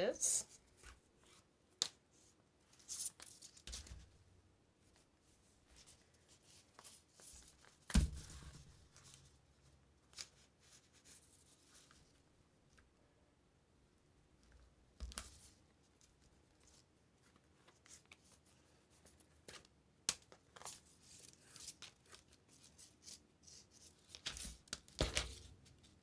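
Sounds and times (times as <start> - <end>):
thump: 7.9 - 8.6.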